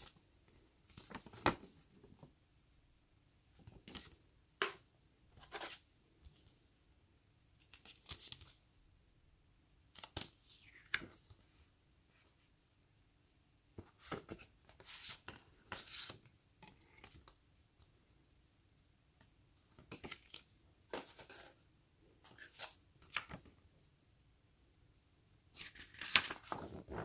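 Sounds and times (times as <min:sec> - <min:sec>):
paper and cardboard rustling: 0:19.8 - 0:21.6.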